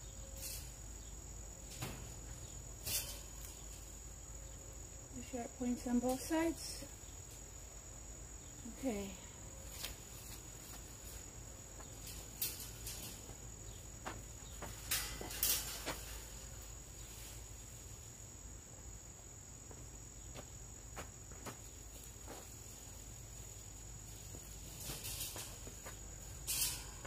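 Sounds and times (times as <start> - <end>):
insect trill: 0.0 - 27.0.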